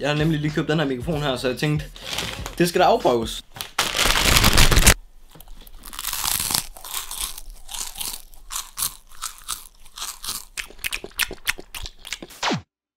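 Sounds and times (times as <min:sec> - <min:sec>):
snack bag rustling: 0:02.0 - 0:02.6, 0:03.6 - 0:12.4
crunching and chewing snack: 0:03.8 - 0:12.5.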